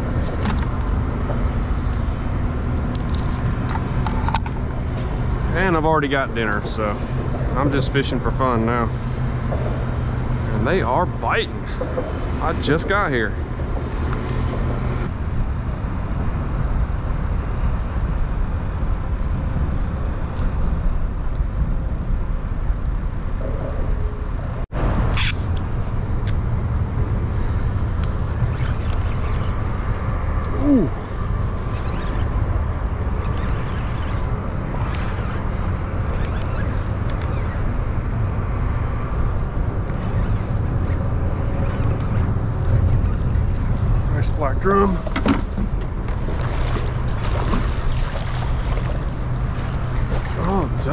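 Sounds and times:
low rumbling noise: 0.0s - 50.9s
fishing reel cranking: 28.3s - 29.6s, 31.4s - 32.4s, 33.2s - 37.7s, 39.8s - 43.3s.

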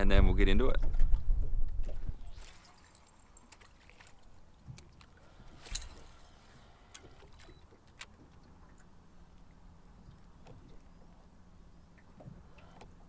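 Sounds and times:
low wind and water noise: 0.0s - 13.0s.

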